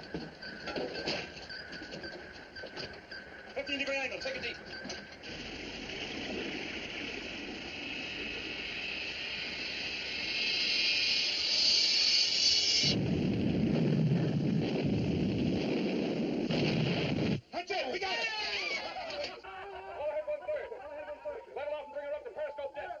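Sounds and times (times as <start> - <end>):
rushing hiss: 5.2 - 13.3
low heavy rumble: 13.0 - 16.8.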